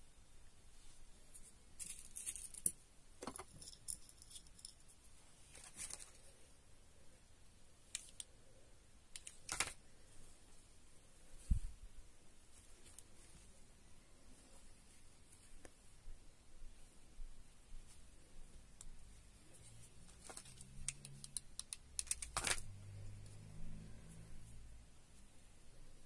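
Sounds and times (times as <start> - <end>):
clicks and rustles of handling: 1.3 - 6.4, 9.1 - 9.8, 18.8 - 23.4.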